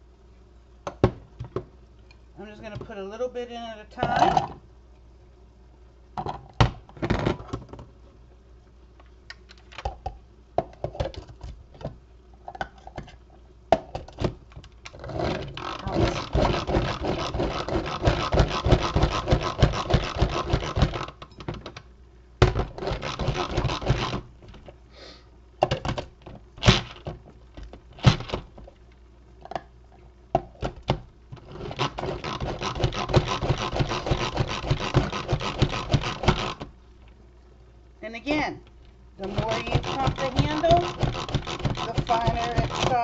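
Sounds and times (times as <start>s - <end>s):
blades chopping nuts: 15.2s - 21.1s, 22.4s - 24.3s, 31.5s - 36.6s, 39.2s - 43.0s
plastic plunger clattering: 39.2s - 43.0s.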